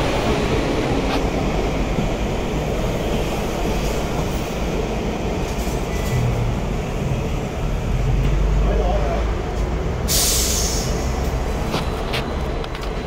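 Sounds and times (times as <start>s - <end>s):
tram rumbling: 0.0s - 13.0s.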